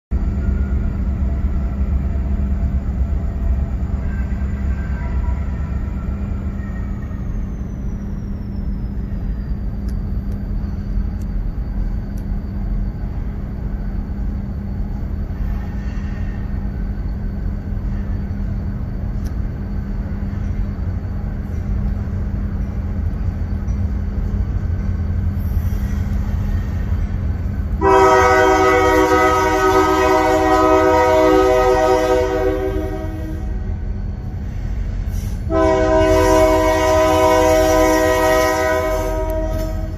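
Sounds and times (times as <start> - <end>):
diesel locomotives rumbling: 0.1 - 39.9
locomotive air horn: 27.8 - 33.8, 35.2 - 39.9.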